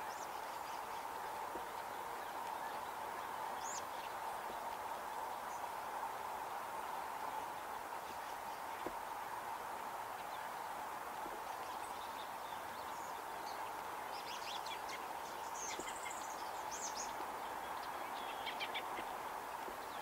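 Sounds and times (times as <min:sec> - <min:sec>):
songbirds chirping: 0:00.0 - 0:20.0.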